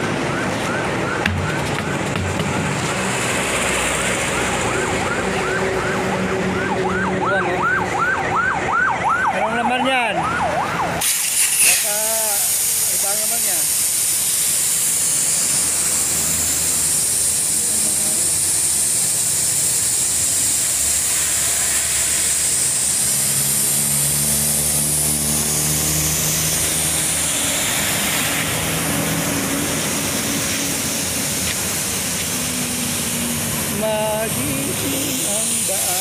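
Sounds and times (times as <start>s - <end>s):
vehicle engine hum: 0.0s - 9.5s, 11.6s - 36.0s
steady high hiss: 11.0s - 36.0s.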